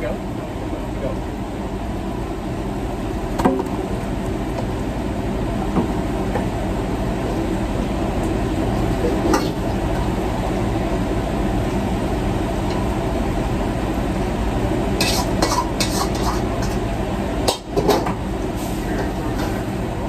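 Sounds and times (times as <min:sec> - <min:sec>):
food stir-frying in a wok: 0:00.0 - 0:20.0
metal ladle clanking on wok: 0:15.0 - 0:16.8.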